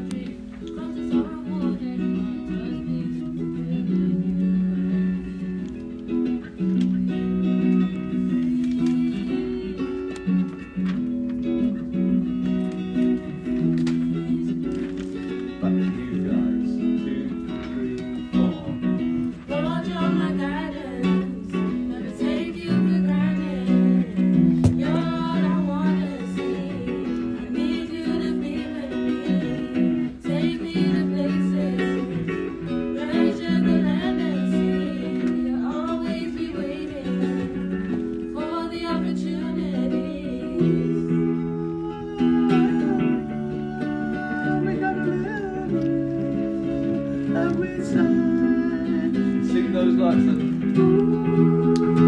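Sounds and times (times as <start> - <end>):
acoustic guitar chords: 0.0 - 52.0
voices singing a hymn: 19.4 - 50.0, 50.7 - 52.0.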